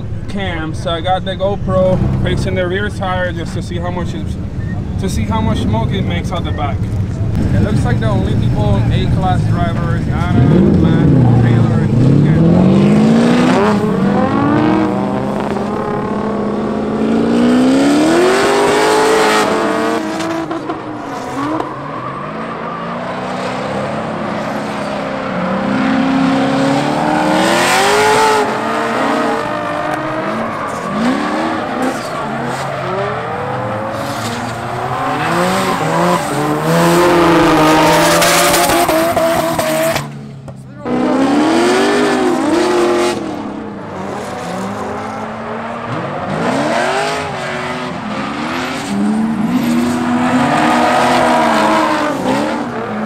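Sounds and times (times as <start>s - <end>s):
car engines revving hard: 0.0s - 53.0s
tyre squeal: 27.0s - 40.1s.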